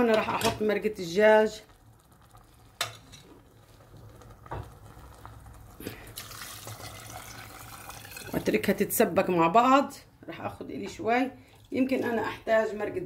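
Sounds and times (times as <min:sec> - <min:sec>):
broth splashing into pot: 0:01.5 - 0:08.8.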